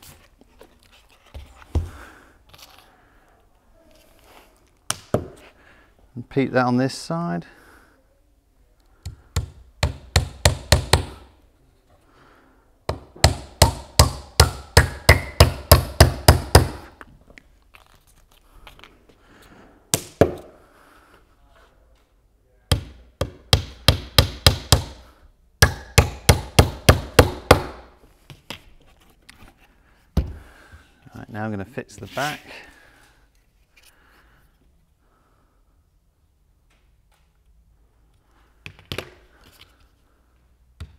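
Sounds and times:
hammer driving nails into wood: 9.0s - 11.3s, 12.9s - 16.9s, 22.7s - 25.0s, 25.6s - 27.9s.

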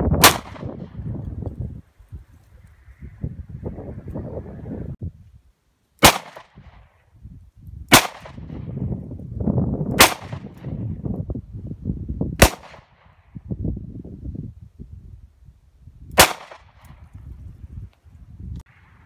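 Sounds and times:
handgun shots: 6.0s - 6.6s, 16.2s - 16.7s.

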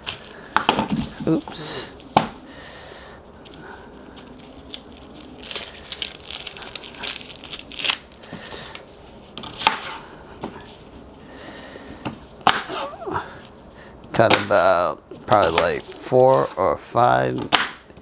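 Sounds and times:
onion skin crackling and tearing: 3.4s - 9.8s.

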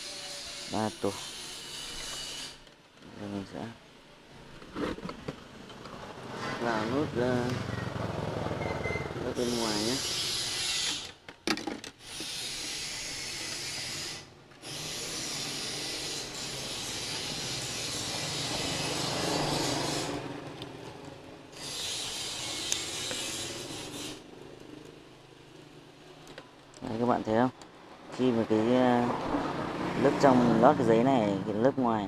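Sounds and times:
wire scraping through motor stator: 0.0s - 2.7s, 9.2s - 11.2s, 12.0s - 20.9s, 21.5s - 24.3s.

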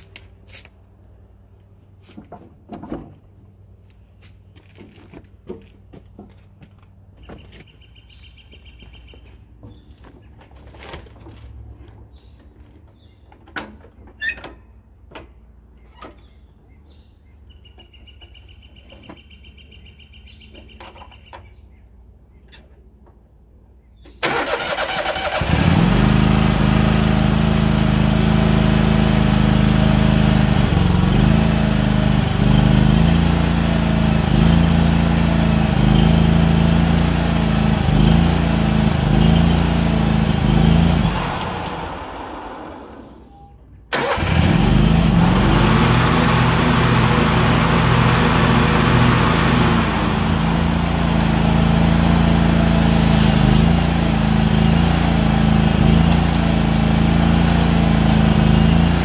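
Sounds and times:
mower engine cranking and running: 24.1s - 59.0s.

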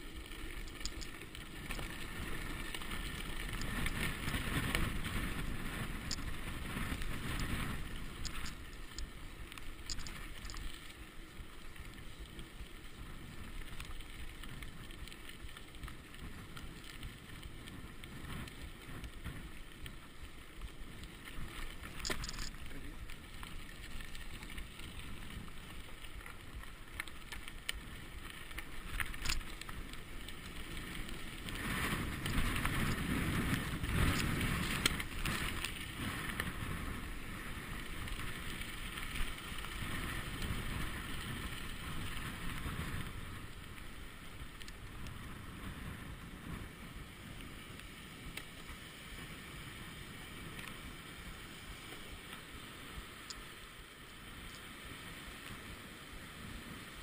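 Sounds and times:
bike rattling: 0.0s - 57.0s
bike tyres rolling on gravel: 0.0s - 57.0s
wind on microphone: 1.6s - 9.1s, 30.6s - 47.7s.

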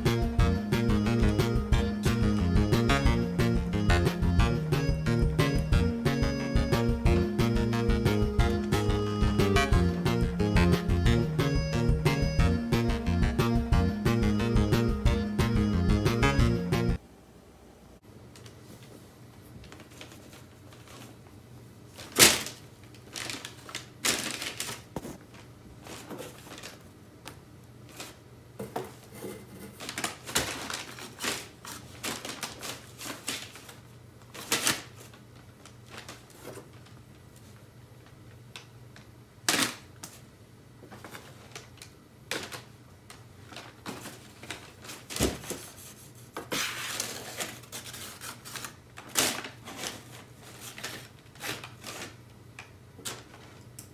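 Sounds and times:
packing paper crinkling: 19.6s - 26.9s, 29.7s - 40.2s, 40.9s - 45.9s, 46.5s - 53.8s.

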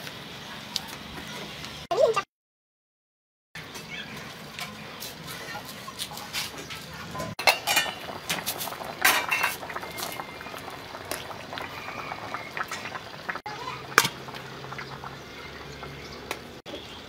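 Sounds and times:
water boiling in pot: 3.6s - 17.0s
metal utensil clinking on pot: 6.0s - 9.7s.

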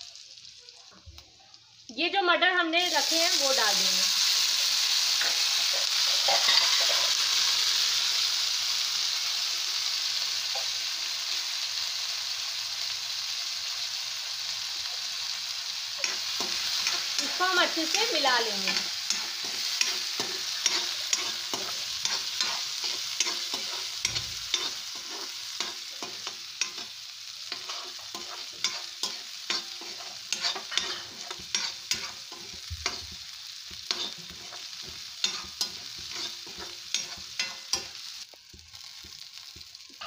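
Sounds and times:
peas sizzling in hot oil: 0.0s - 40.0s
metal spatula scraping pan: 5.2s - 7.2s, 16.0s - 26.9s, 27.5s - 33.2s, 33.8s - 37.9s.

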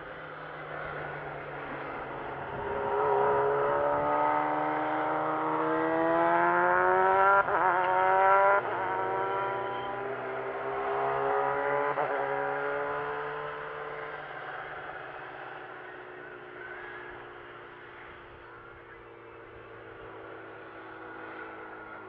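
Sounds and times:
race car accelerating: 0.0s - 22.0s.

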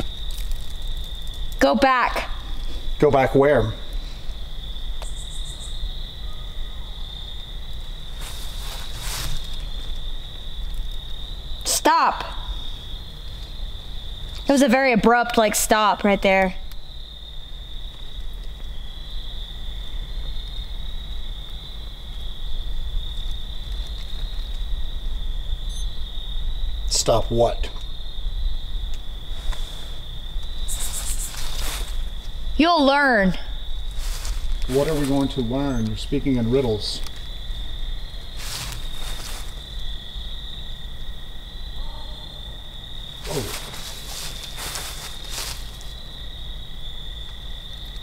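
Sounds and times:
night insects trilling: 0.0s - 48.0s
short rustling: 8.1s - 10.0s, 30.7s - 32.3s, 33.9s - 35.5s, 38.2s - 39.7s, 43.1s - 46.0s.

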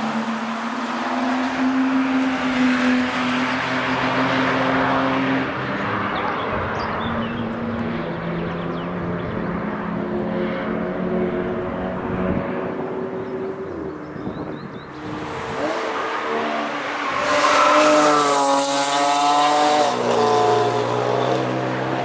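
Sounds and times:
distant car engine: 0.0s - 22.0s
race cars passing at speed: 0.0s - 22.0s.

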